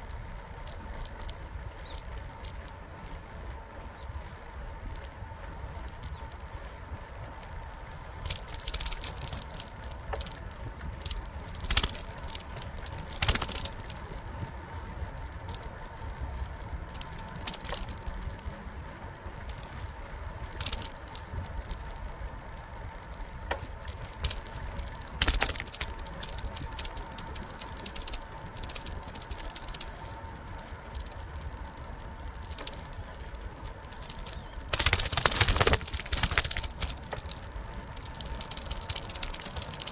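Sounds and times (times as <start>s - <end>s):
bicycle tyres rumbling: 0.0s - 39.9s
bike rattling over bumps: 0.0s - 39.9s
faint steady whine: 0.0s - 39.9s
wind: 0.0s - 39.9s.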